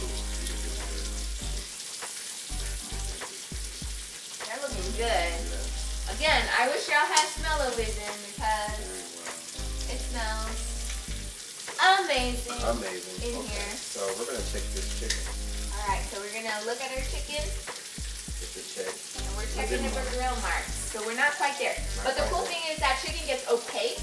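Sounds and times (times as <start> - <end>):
chicken sizzling on griddle: 0.0 - 24.0
pitched voice-like sounds: 19.2 - 21.0, 21.8 - 24.0.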